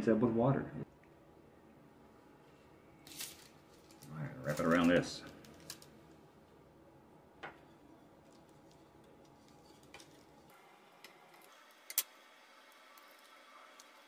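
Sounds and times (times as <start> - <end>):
faint room noise: 0.0 - 14.0.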